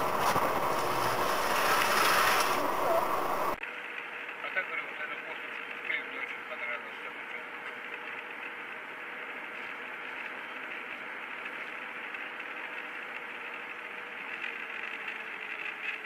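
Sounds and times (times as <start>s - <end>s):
car engine running: 0.0s - 3.6s
faint steady hum: 0.0s - 16.0s
tyres on the road: 0.0s - 16.0s.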